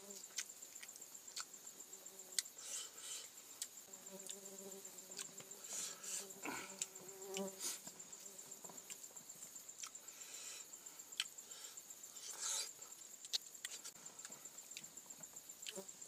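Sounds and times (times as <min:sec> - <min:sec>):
insect trill: 0:00.0 - 0:16.0
lip smacks and chewing clicks: 0:09.8 - 0:10.0, 0:13.2 - 0:14.8.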